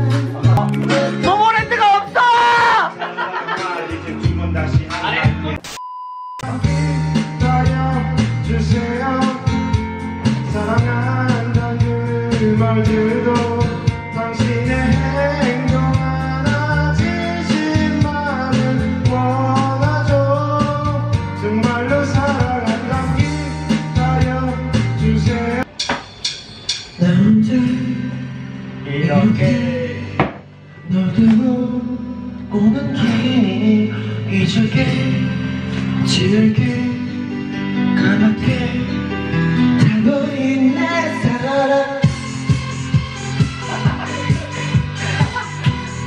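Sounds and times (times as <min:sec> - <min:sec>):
karaoke backing track: 0:00.0 - 0:05.8, 0:06.4 - 0:46.0
man singing into microphone: 0:06.4 - 0:25.7, 0:27.0 - 0:42.5
drum hits: 0:25.7 - 0:27.0.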